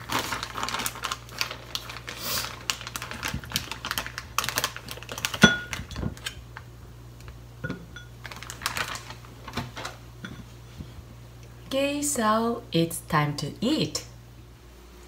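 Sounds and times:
plastic bag crinkling: 0.0 - 6.6, 8.2 - 10.0.

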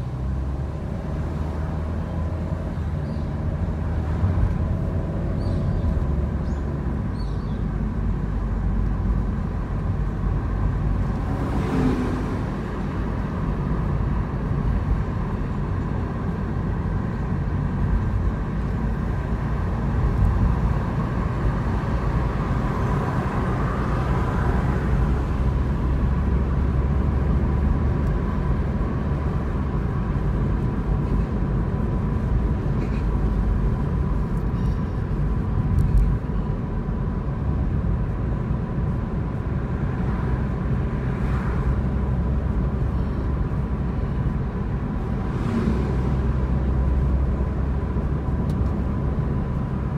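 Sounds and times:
car engine and road rumble: 0.0 - 49.9.

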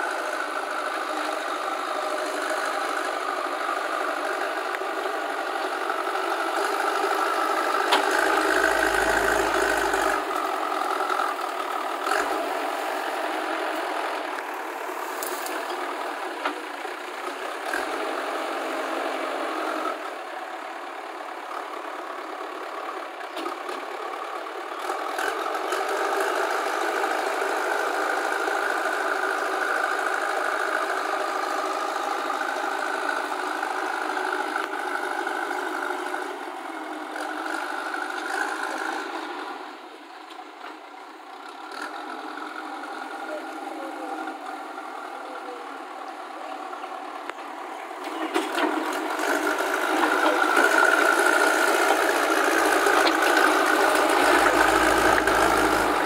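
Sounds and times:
diesel engine under load: 0.0 - 56.0.

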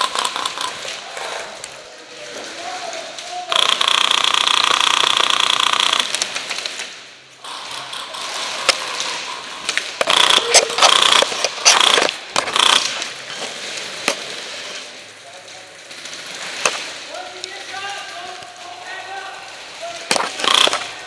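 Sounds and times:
scattered clicks: 0.0 - 1.0, 3.2 - 6.9, 7.5 - 13.1, 20.1 - 21.0
airsoft rifle bursts: 3.5 - 6.2, 10.0 - 13.1, 20.0 - 21.0.

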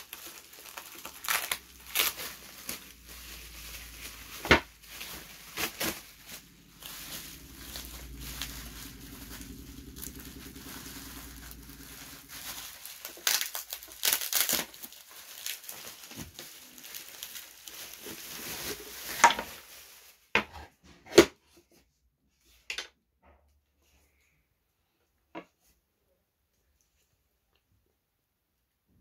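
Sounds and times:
bubble wrap crinkling: 0.0 - 20.4.

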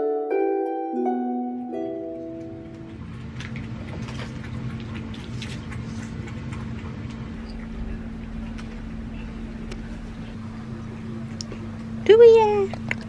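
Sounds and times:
low hum: 1.4 - 13.0
kibble clicking and crunching: 2.4 - 7.9.

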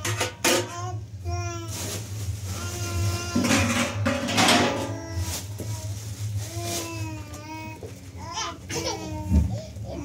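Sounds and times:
metal tray and dishes clattering: 0.0 - 0.8, 3.3 - 5.2.

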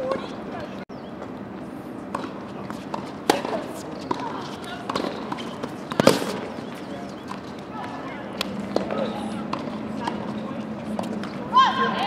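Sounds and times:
tennis ball hit by rackets: 2.1 - 6.5
tennis ball bouncing on hard court: 2.1 - 10.4.

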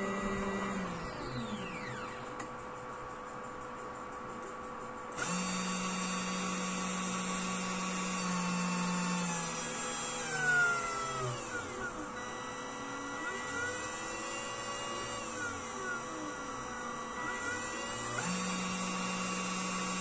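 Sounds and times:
spindle motor whining: 0.0 - 2.6, 5.2 - 20.0.

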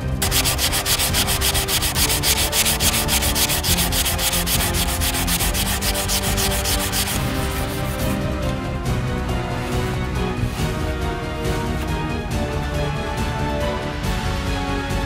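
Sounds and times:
sanding strokes on plastic: 0.2 - 8.2.

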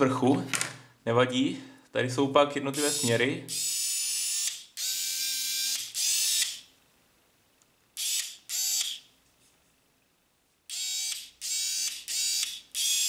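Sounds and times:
cordless screwdriver motor whining: 2.8 - 6.6, 8.0 - 9.0, 10.7 - 13.0.

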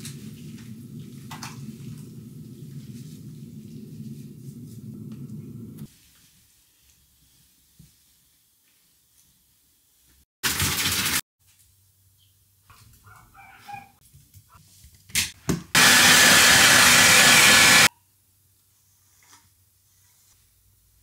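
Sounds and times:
blow dryer running: 15.8 - 17.9.

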